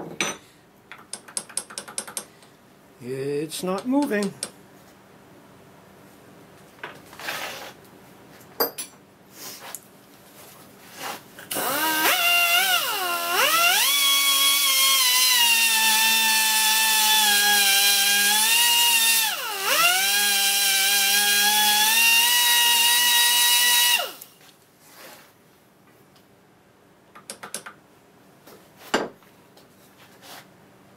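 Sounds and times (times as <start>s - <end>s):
pneumatic die grinder whining: 11.5s - 24.3s.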